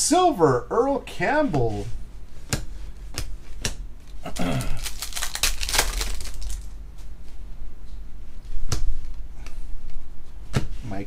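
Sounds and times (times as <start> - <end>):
foil wrapper crinkling: 4.0 - 6.8
cards rustling: 4.8 - 6.7.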